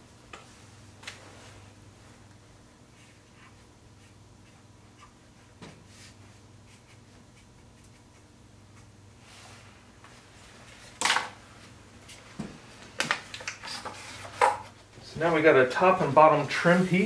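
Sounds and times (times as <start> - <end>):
marker scratching: 6.0 - 8.9.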